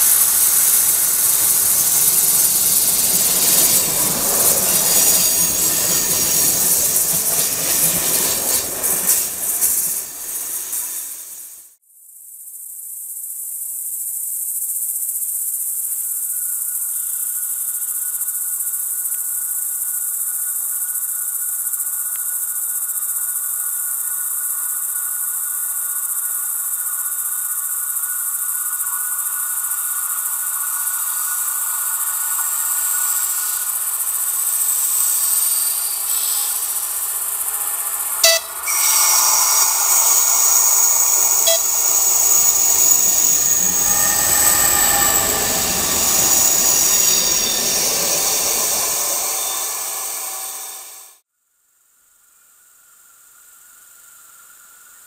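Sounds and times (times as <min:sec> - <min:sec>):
insect chirring: 0:00.0 - 0:11.4, 0:12.4 - 0:51.1
diesel railcar approaching: 0:00.0 - 0:11.6, 0:26.7 - 0:51.2.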